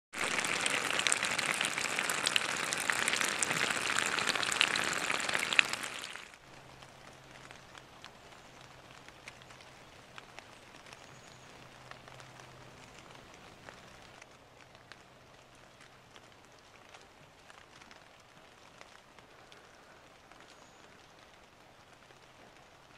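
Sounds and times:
rain pattering on wet leaves: 0.1s - 22.9s.

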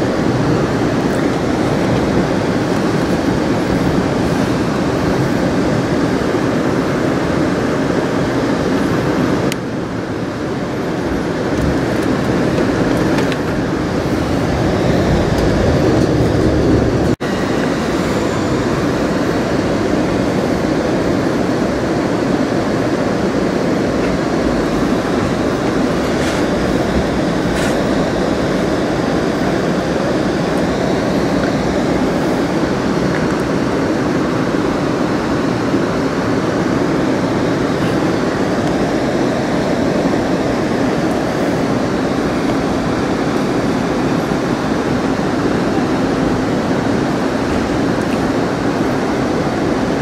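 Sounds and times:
train wheels rumbling on rails: 8.8s - 35.1s.

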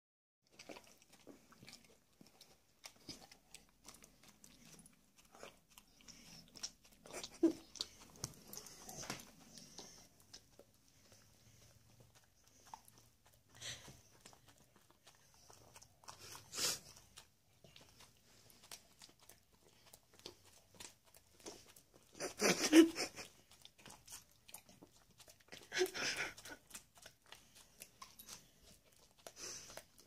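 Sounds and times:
dog chewing and lip smacking: 0.4s - 30.0s.

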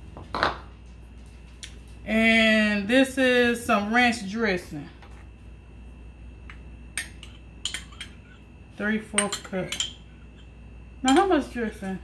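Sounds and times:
ceramic ramekin clinking on glass bowl: 9.2s - 10.1s.

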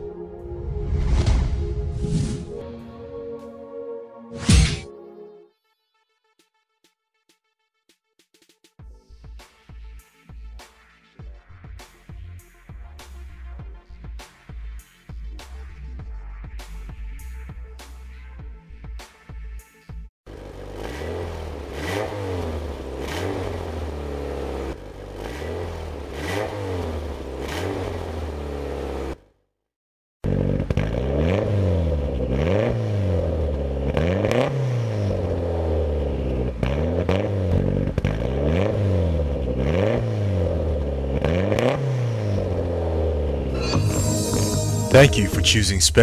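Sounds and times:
car engine revving: 20.3s - 29.2s, 30.6s - 45.7s.

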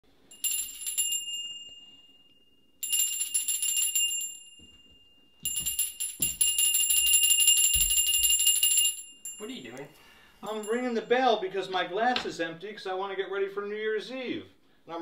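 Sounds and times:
hand bell ringing: 0.3s - 11.1s.

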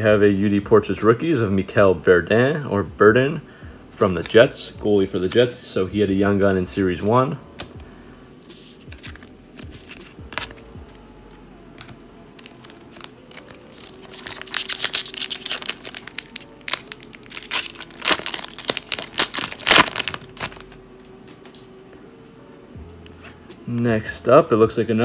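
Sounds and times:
wrapper being torn and crinkled: 12.4s - 20.8s.

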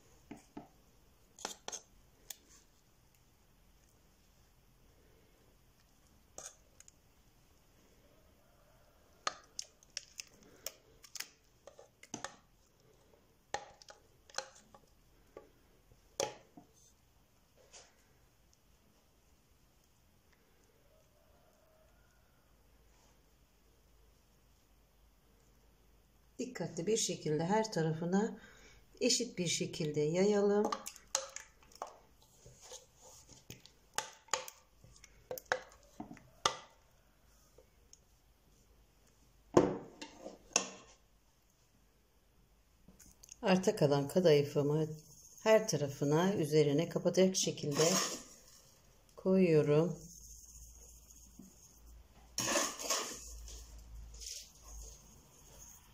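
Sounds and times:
spatula scraping a metal bowl: 1.4s - 1.9s, 6.4s - 6.6s, 47.6s - 48.7s, 49.9s - 55.9s.

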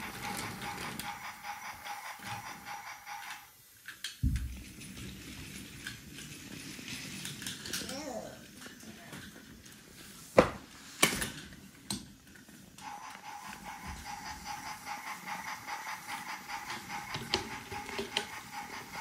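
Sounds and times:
toy train motor whine: 0.0s - 3.6s, 4.8s - 8.8s, 12.8s - 19.0s.

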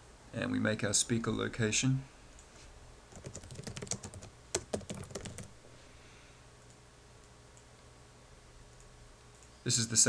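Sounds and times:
typing on a keyboard: 3.1s - 5.5s.

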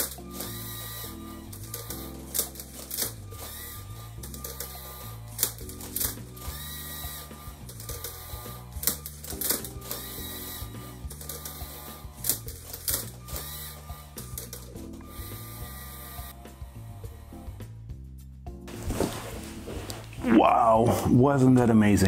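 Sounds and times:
motors whirring: 0.0s - 17.7s
background music: 0.0s - 22.0s
plastic parts clacking: 4.2s - 6.2s, 12.2s - 14.8s.

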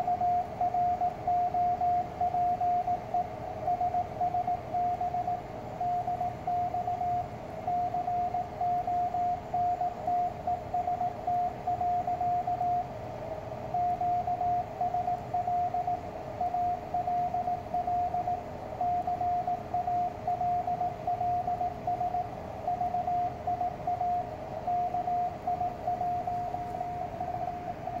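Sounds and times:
morse code tone: 13.7s - 28.0s.

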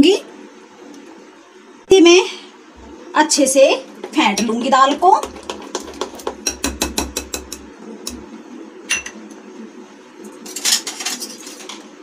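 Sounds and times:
batter slapping in glass bowl: 4.0s - 8.2s.

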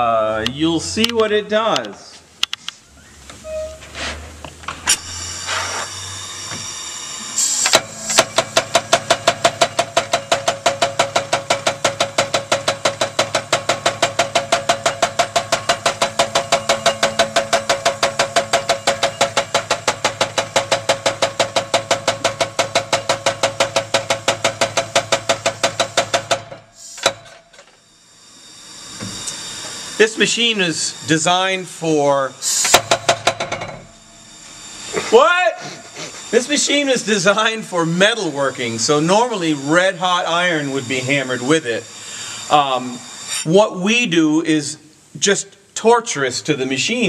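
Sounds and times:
air hissing: 2.2s - 10.0s, 24.0s - 33.1s, 33.9s - 43.6s
power hammer striking metal: 7.4s - 27.8s, 32.5s - 41.8s.

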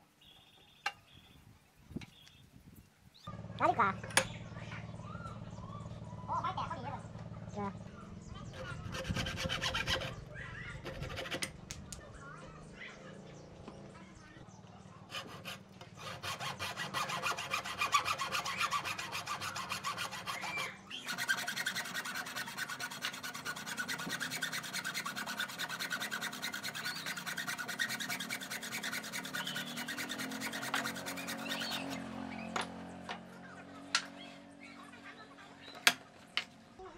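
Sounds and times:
hacksaw cutting wood: 8.5s - 11.6s, 15.1s - 32.8s.

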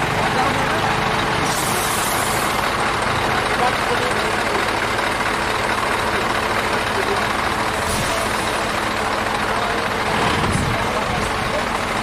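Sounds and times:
diesel truck engine running: 0.0s - 12.0s.

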